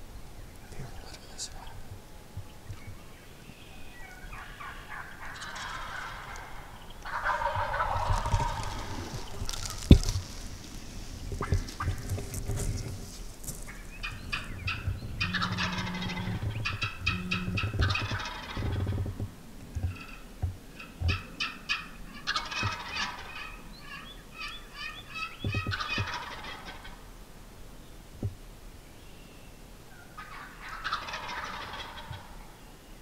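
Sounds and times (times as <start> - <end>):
softer turkey calls: 0.6 - 27.2, 29.0 - 32.6
turkey gobbling: 3.7 - 27.0, 29.9 - 32.6.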